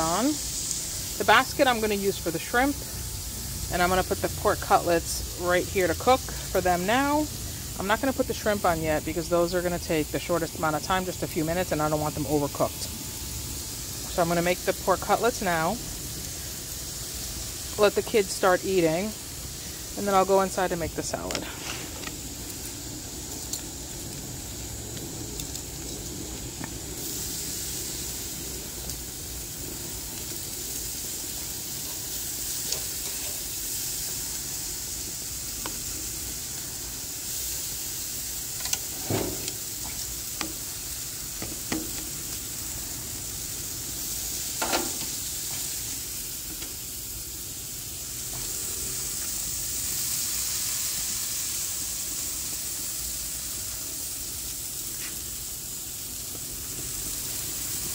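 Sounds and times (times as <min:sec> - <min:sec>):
meat sizzling on a grill: 0:00.0 - 0:57.9
metal tongs clacking on grill: 0:32.6 - 0:33.5, 0:38.5 - 0:40.6, 0:44.6 - 0:45.6.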